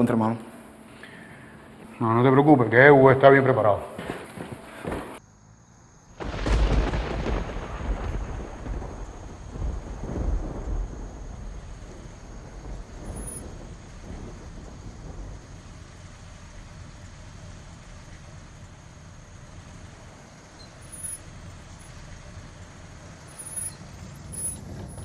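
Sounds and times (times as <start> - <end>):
car engine running low: 8.6 - 25.0.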